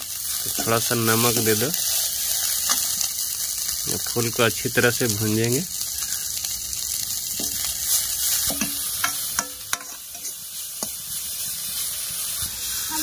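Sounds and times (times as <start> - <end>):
flowers sizzling in hot oil: 0.0 - 13.0
ladle clinking and scraping pan: 8.4 - 11.0.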